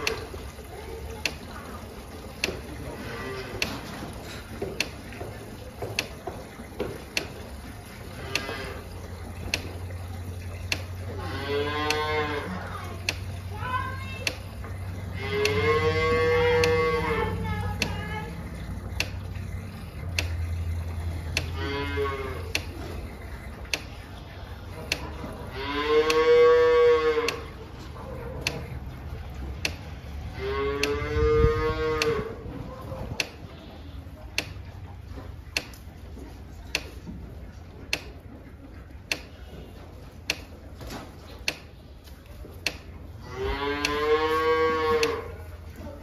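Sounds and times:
cattle mooing: 2.8s - 3.8s, 7.8s - 9.1s, 11.0s - 13.0s, 15.0s - 18.7s, 20.8s - 22.6s, 25.3s - 27.7s, 30.3s - 32.5s, 43.2s - 45.5s
sharp ticking: 11.8s - 21.6s.

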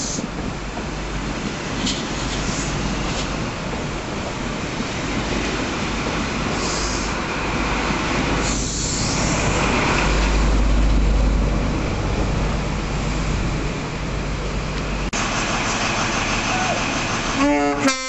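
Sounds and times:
train wheels rolling over rails: 0.0s - 17.6s
diesel engine passing: 8.6s - 18.0s.

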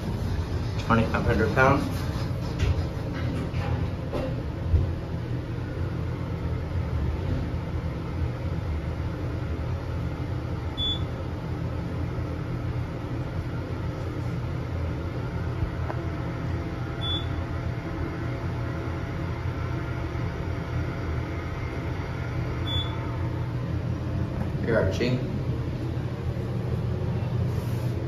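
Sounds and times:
elevator low hum: 0.0s - 28.0s
short high beeps: 22.7s - 23.0s.

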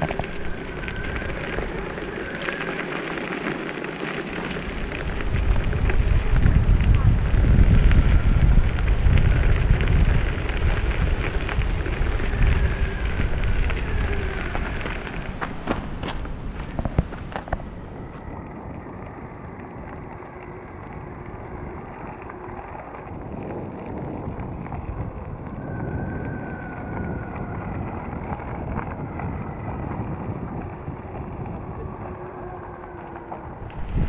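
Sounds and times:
tyres crunching over gravel: 0.0s - 18.8s, 33.3s - 34.0s
wind buffeting microphone: 0.0s - 34.0s.

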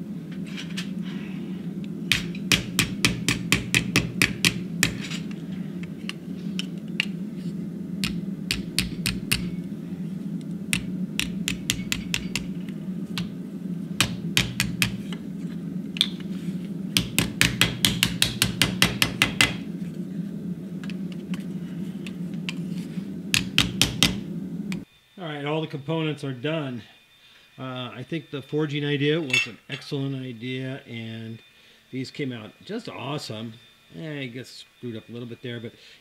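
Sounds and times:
hammer striking hot steel: 2.0s - 7.2s, 8.0s - 9.8s, 10.7s - 13.4s, 14.0s - 15.3s, 15.9s - 16.3s, 16.9s - 19.7s, 22.0s - 24.9s.

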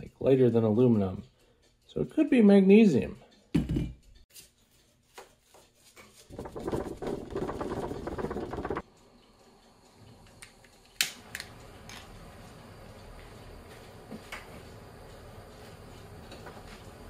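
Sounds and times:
butane torch clicking alight: 9.9s - 12.2s.

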